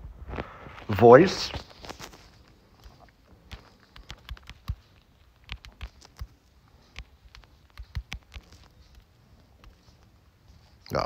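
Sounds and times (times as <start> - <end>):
taps on touchscreen keyboard: 3.5 - 4.8, 5.4 - 6.3, 6.9 - 8.7.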